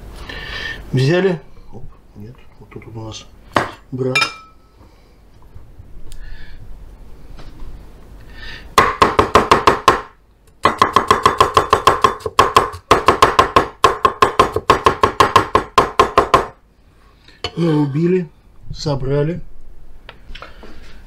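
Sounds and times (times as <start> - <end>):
knife chopping on wooden board: 8.8 - 16.6.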